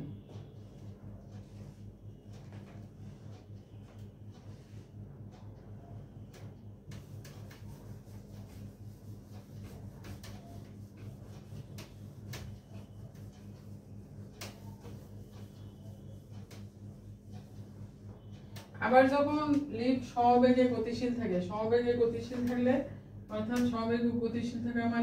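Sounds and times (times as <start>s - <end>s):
steady low hum: 0.0s - 25.0s
whiteboard eraser rubbing board: 0.1s - 19.6s.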